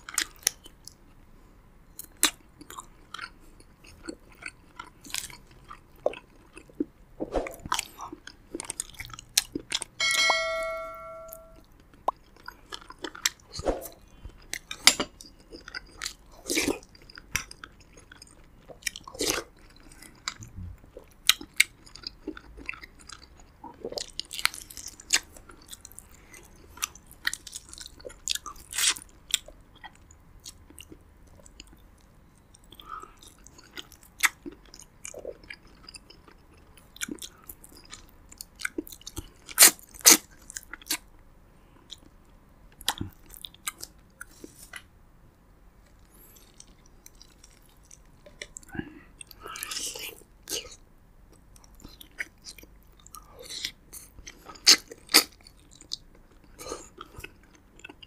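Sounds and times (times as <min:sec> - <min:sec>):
close chewing and biting: 0:02.0 - 0:06.9, 0:07.7 - 0:10.0, 0:11.7 - 0:41.1, 0:45.8 - 0:58.0
bell-like chime: 0:10.0 - 0:11.6.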